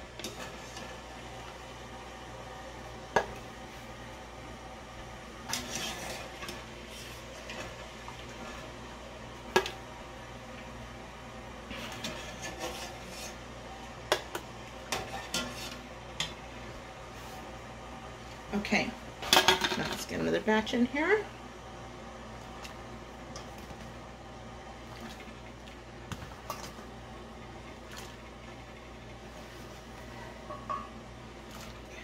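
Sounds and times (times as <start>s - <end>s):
low steady hum: 0.0s - 32.0s
wire skimmer scraping metal pot: 5.4s - 8.7s, 11.7s - 13.4s, 14.9s - 15.8s.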